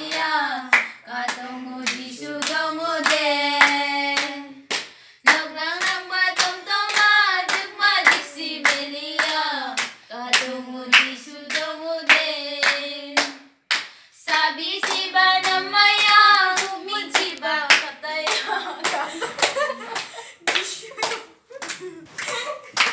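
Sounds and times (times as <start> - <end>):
girls singing in unison: 0.0 - 13.6, 14.2 - 19.3
hands clapping: 0.0 - 22.9.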